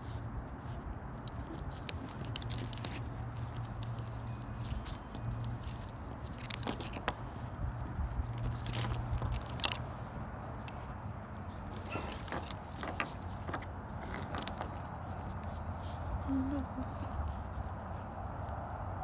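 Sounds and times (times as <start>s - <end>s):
metal pins clinking: 1.2s - 7.2s, 8.1s - 15.6s.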